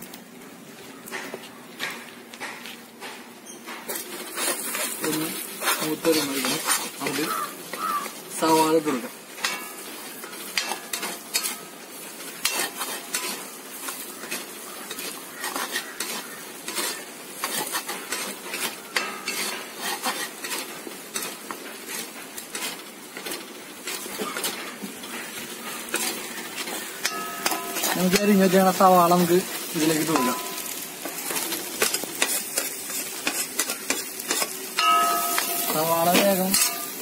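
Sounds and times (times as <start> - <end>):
food sizzling in oil: 3.4 - 37.0
spoon scraping and clinking on pan: 10.5 - 11.7, 12.4 - 21.4, 25.9 - 28.4, 29.6 - 37.0.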